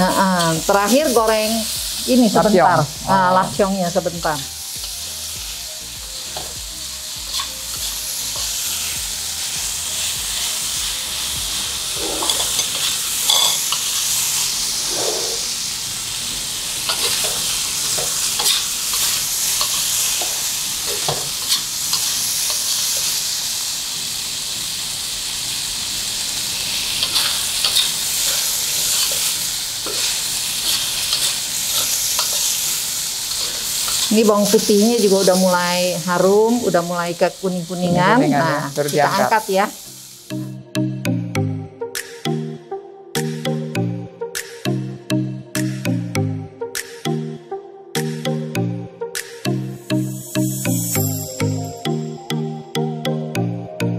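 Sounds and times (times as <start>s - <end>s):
garlic sizzling in hot oil: 0.0s - 40.5s, 50.0s - 51.6s
spatula scraping pan: 11.9s - 13.8s, 14.7s - 15.6s.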